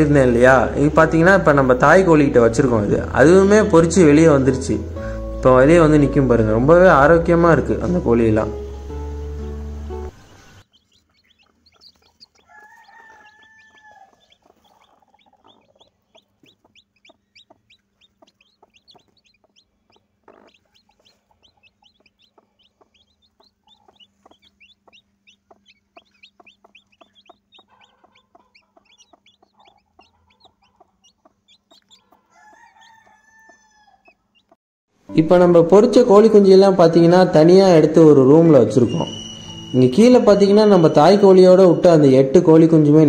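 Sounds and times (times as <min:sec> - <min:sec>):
chicks peeping: 0:08.4 - 0:34.6
longer lower chick calls: 0:09.8 - 0:34.6.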